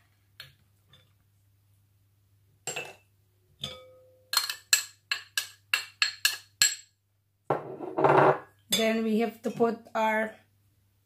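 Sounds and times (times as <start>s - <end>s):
metal spoon clinking against bowls: 3.6s - 6.9s.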